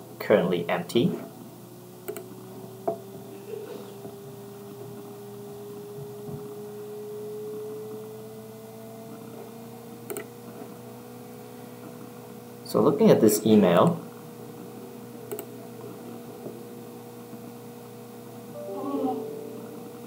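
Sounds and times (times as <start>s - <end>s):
low electrical hum: 0.0s - 20.0s
sharp click: 2.1s - 2.3s, 10.1s - 10.3s, 15.3s - 15.5s
rising tone: 18.6s - 20.0s.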